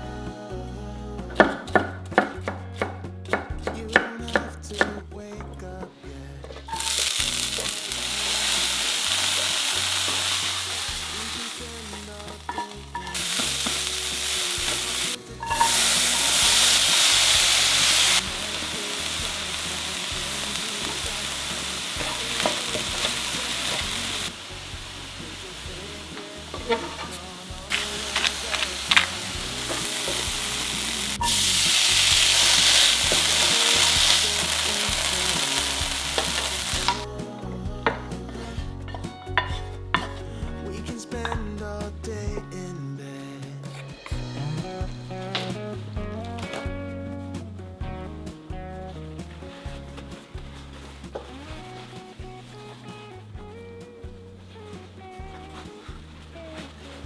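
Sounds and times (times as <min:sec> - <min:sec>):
vegetables sizzling in a frying pan: 0:06.7 - 0:37.0.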